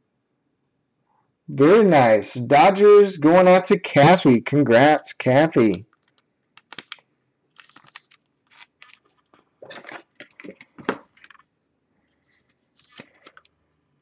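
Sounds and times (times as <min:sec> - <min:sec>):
plastic card sleeve crinkling: 0:05.9 - 0:11.5, 0:12.3 - 0:13.6.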